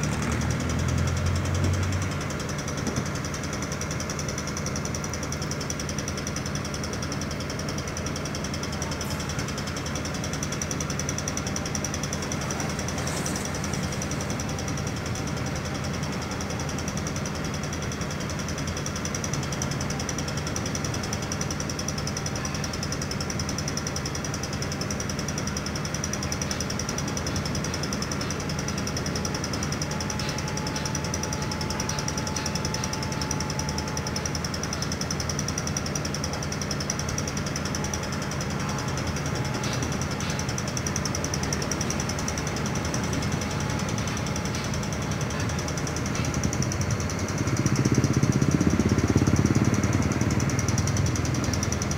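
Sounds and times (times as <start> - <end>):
diesel engine running steadily: 0.0 - 51.9
high-pitched whine: 10.6 - 16.3, 37.4 - 51.9.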